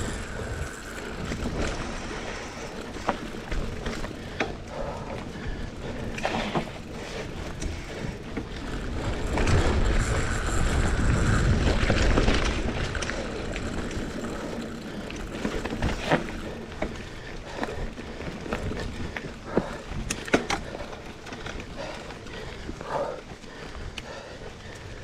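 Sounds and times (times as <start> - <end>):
wind rumble on microphone: 0.0 - 16.6
bike clicks and rattles: 0.0 - 25.0
bike tyres on dirt: 0.0 - 25.0.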